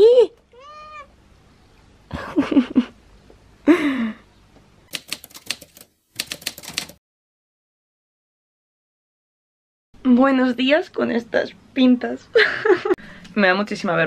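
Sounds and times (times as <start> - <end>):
typewriter key strikes: 4.9 - 7.0.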